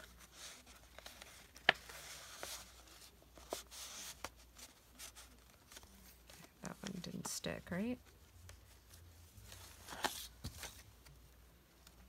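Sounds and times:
paper rustling: 0.0s - 7.4s, 8.0s - 12.0s.

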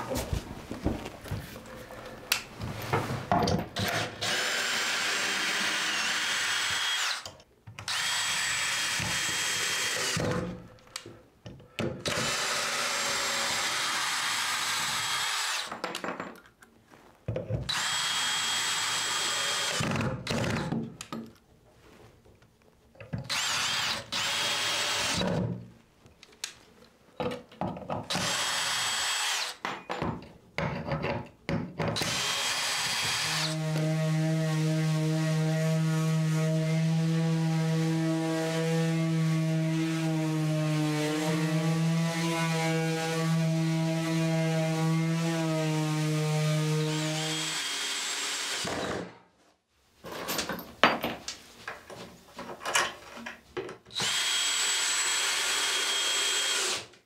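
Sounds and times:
power drill whining: 3.8s - 7.3s, 7.9s - 10.4s, 12.0s - 15.7s, 17.7s - 20.6s, 23.3s - 25.4s, 28.1s - 29.6s, 32.0s - 34.0s, 47.2s - 49.1s, 53.9s - 57.0s.

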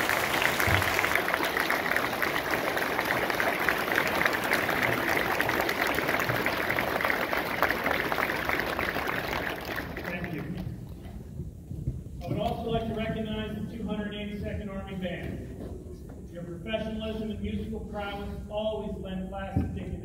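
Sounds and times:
audience applauding: 0.0s - 10.7s.

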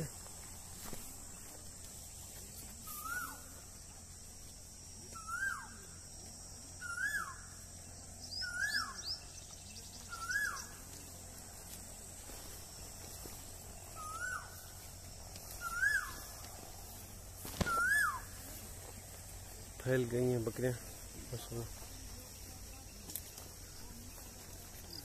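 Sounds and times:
bird calling: 2.8s - 3.6s, 5.1s - 6.0s, 6.8s - 11.1s, 12.7s - 19.8s.

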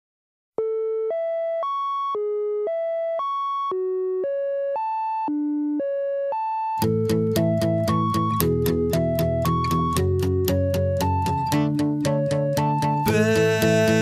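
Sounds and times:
electronic beep tone melody: 0.6s - 14.0s
pop music with instruments: 6.8s - 14.0s.

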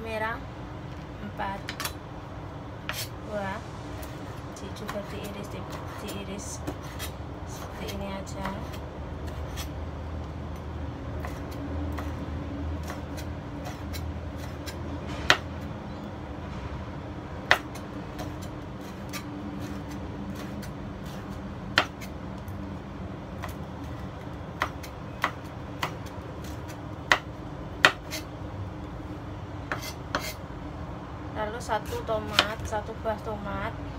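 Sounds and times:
knife chopping on cutting board: 17.5s - 22.1s, 24.6s - 28.2s, 29.7s - 30.4s.

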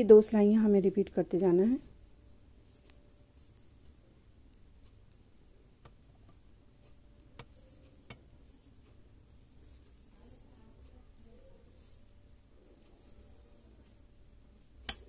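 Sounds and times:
knitting needles clicking: 0.9s - 15.0s.

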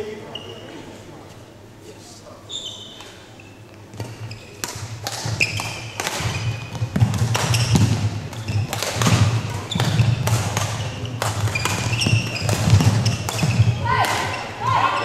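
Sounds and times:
shoes squeaking on court floor: 0.2s - 1.4s, 2.4s - 15.0s
racket striking shuttlecock: 4.0s - 14.4s.

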